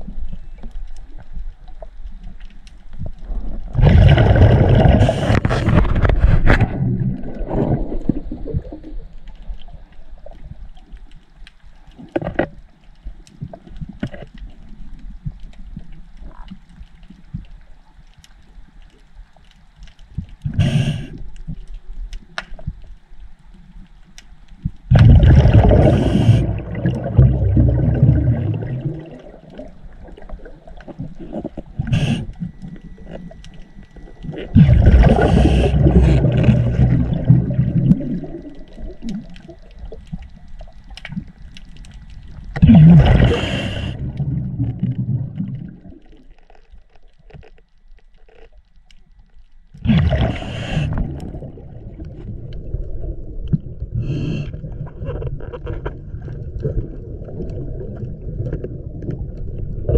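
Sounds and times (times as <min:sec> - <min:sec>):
diver exhaling bubbles underwater: 0:03.2 - 0:09.0, 0:24.9 - 0:33.4, 0:34.0 - 0:39.9, 0:42.5 - 0:46.2, 0:49.8 - 0:59.9.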